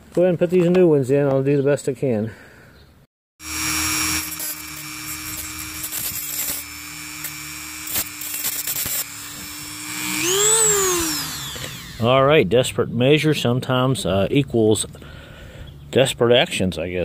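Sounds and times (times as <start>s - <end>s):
rotary tool cutting whine: 3.4s - 12.2s.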